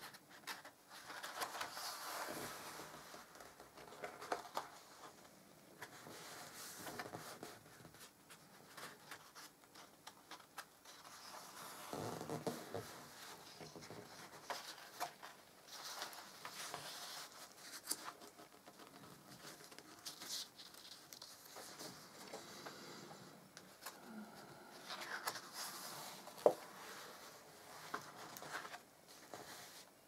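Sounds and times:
hands tapping and scraping paper: 0.0 - 5.2, 5.8 - 22.8, 24.8 - 29.9
page turning: 0.0 - 5.2, 5.8 - 22.8, 24.8 - 29.9
album pages rustling: 0.0 - 22.9, 23.5 - 30.0.

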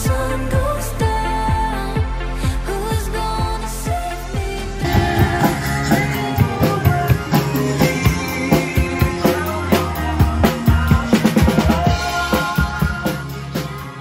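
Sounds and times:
pop music playing: 2.7 - 14.0
acoustic drum kit: 4.8 - 14.0.

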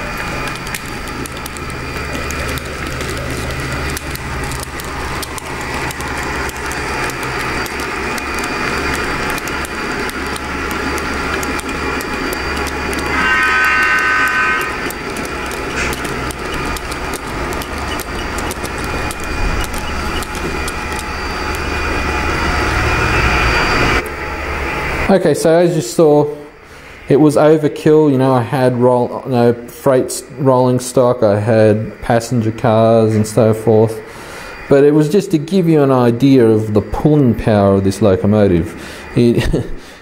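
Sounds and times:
model train wheels clicking: 0.0 - 26.3, 27.1 - 40.0
low hum: 0.0 - 37.4
diesel horn: 12.9 - 16.4.

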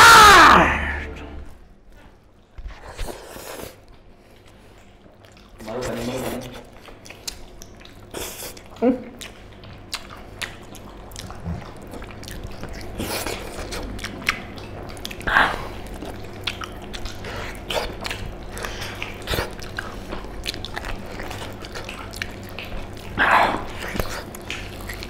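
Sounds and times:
people chewing meat: 1.9 - 25.0
wet smacking: 6.4 - 25.0.

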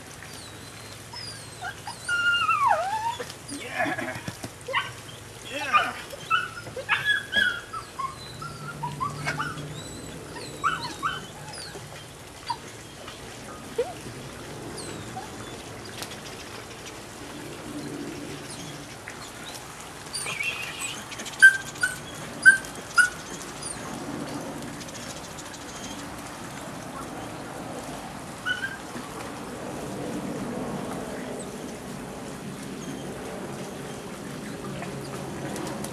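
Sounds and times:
puppy whining and yipping: 0.3 - 14.0, 14.8 - 15.6, 20.1 - 23.9, 25.7 - 26.0, 28.4 - 29.0
puppy yelping: 1.1 - 4.0, 4.7 - 12.7, 20.2 - 23.8, 28.5 - 28.8.

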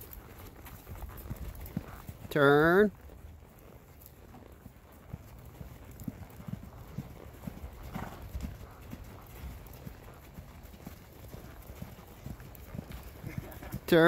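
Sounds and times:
hoofbeats on soft dirt: 0.0 - 14.0.

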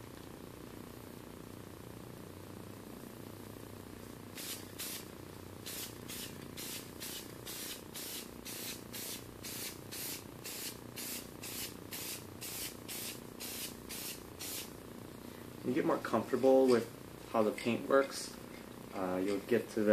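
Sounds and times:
spray-paint can hissing: 4.4 - 14.8.

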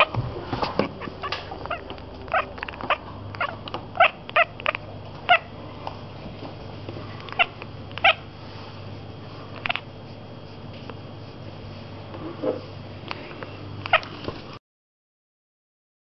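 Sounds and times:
cat chattering: 0.8 - 5.5, 7.3 - 8.3, 9.6 - 9.9.

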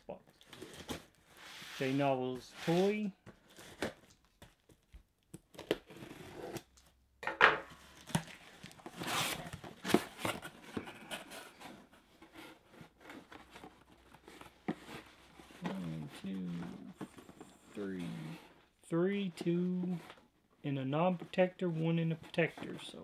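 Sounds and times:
box contents rustling: 7.8 - 18.6.

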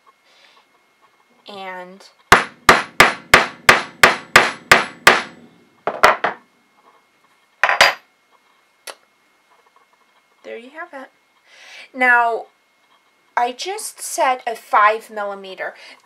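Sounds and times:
rubber mallet striking steel rod: 2.3 - 5.3.

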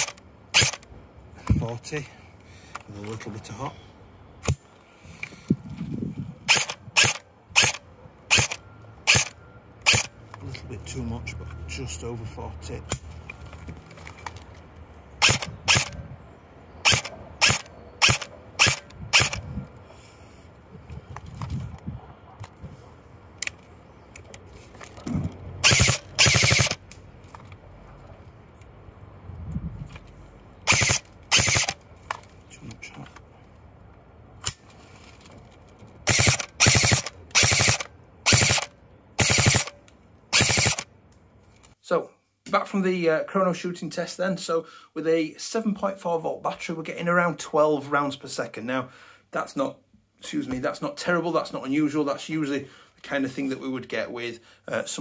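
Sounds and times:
airsoft gun rapid bursts: 6.5 - 9.3, 15.2 - 15.9, 16.8 - 19.4, 25.6 - 26.8, 30.7 - 31.8, 36.1 - 39.7, 40.3 - 40.8
airsoft gun single shots: 25.6 - 26.8, 30.7 - 31.8, 36.1 - 39.8.

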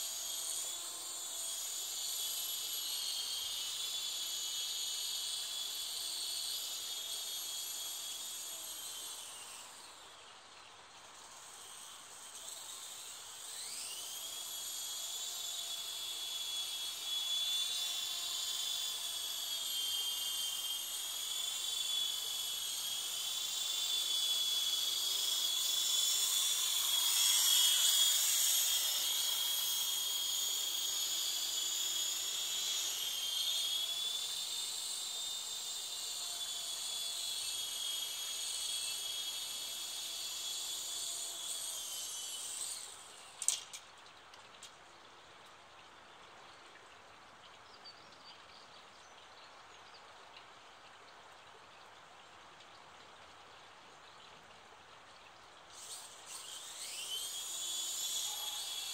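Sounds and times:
toy helicopter motor whine: 0.0 - 43.9, 55.7 - 58.9.

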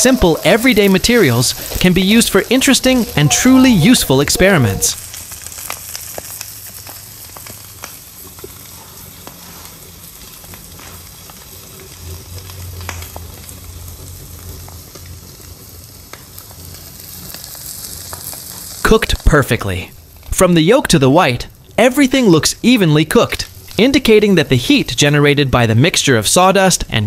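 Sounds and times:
egg sizzling in a wok: 0.0 - 3.2, 4.9 - 19.2.

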